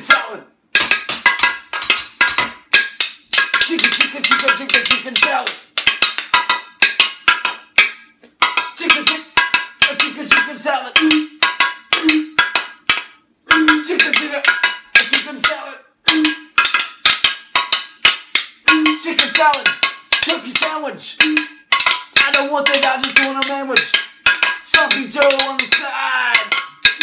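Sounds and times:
sharp ringing percussion clicks: 13.5 - 27.0.

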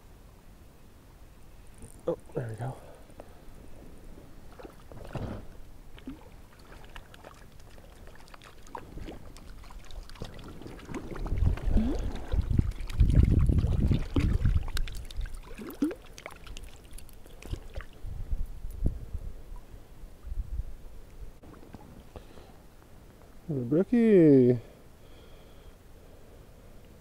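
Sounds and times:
water splashing: 4.4 - 18.0.

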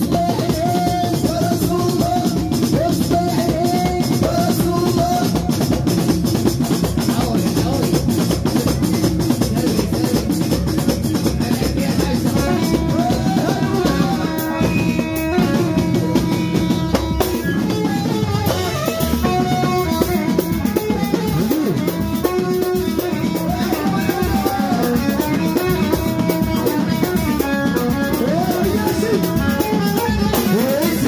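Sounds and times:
drum kit and percussion beat: 0.0 - 31.0
live band music: 0.0 - 31.0
sliding melodic lead: 12.0 - 31.0.

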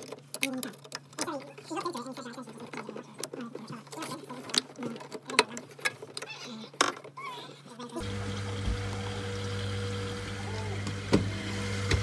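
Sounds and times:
clicks and knocks of parts: 0.0 - 7.2
boiler humming: 8.0 - 12.0.

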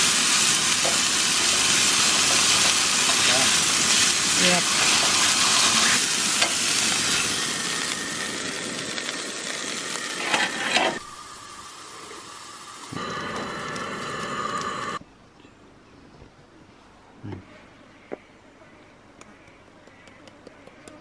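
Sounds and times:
steaks sizzling in frying pan: 0.0 - 15.0.

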